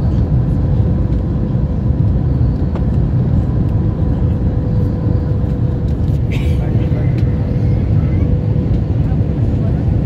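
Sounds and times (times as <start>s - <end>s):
airliner cabin engine rumble: 0.0s - 10.0s.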